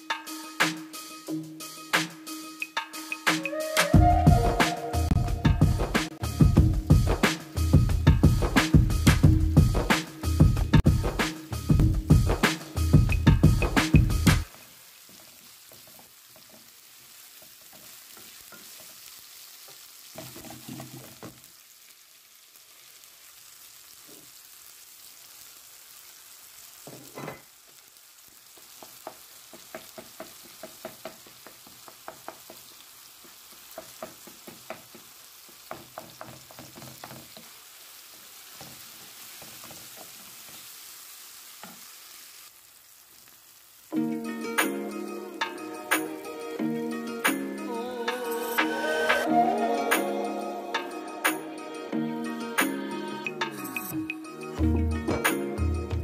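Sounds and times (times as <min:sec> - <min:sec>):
food sizzling in a frying pan: 0:00.0 - 0:56.0
spoon scraping a pan: 0:20.0 - 0:21.4, 0:26.8 - 0:27.5.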